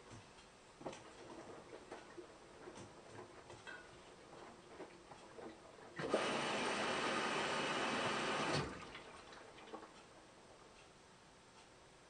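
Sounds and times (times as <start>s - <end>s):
washing machine clicks and ticks: 0.0s - 5.6s
washing machine rushing: 1.1s - 9.8s.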